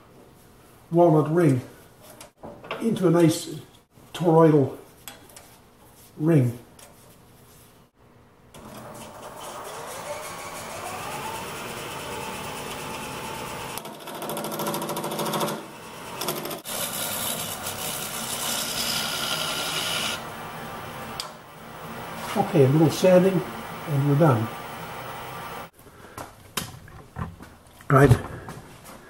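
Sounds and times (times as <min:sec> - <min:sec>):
turning tool cutting wood: 0:08.6 - 0:20.3
wood lathe motor whine: 0:08.6 - 0:22.2.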